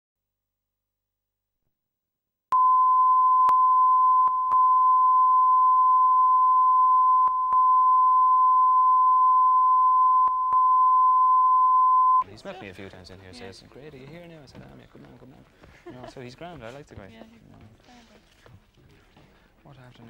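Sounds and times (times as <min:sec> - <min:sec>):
steady test tone beep: 0:02.5 - 0:12.2.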